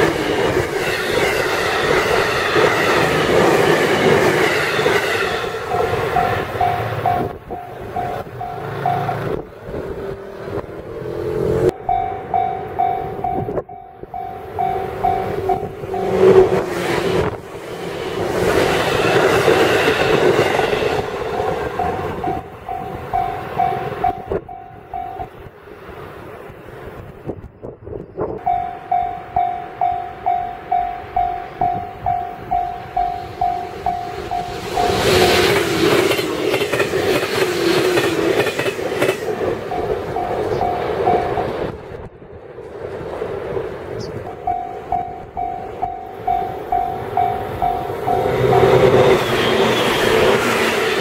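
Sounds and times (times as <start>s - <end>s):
level-crossing warning bell ringing: 0.0s - 9.5s, 11.7s - 25.5s, 28.4s - 37.4s, 38.3s - 41.7s, 44.2s - 51.0s
train rumble: 0.0s - 51.0s
level crossing bell ringing: 11.8s - 16.2s, 28.4s - 35.2s, 44.4s - 49.0s.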